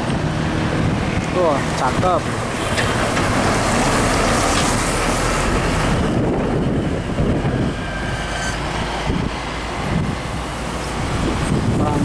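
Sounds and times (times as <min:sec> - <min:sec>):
truck diesel engine passing: 0:00.0 - 0:12.0.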